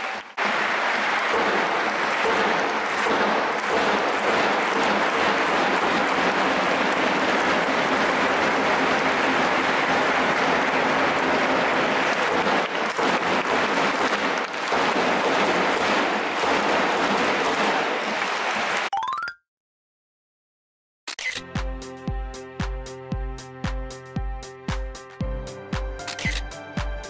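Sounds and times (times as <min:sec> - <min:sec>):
stadium crowd applauding: 0:00.0 - 0:18.9.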